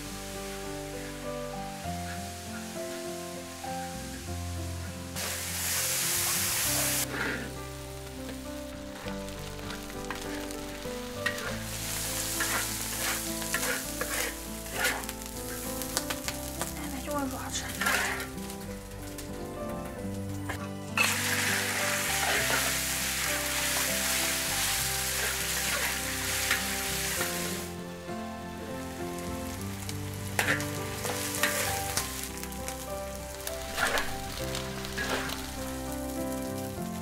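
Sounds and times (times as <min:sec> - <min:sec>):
food sizzling in a wok: 0:00.0 - 0:37.0
soft background music: 0:00.0 - 0:37.0
spatula scraping a wok: 0:05.1 - 0:07.6, 0:09.0 - 0:16.6, 0:17.5 - 0:18.6, 0:20.4 - 0:27.7, 0:29.2 - 0:32.5, 0:33.4 - 0:35.6.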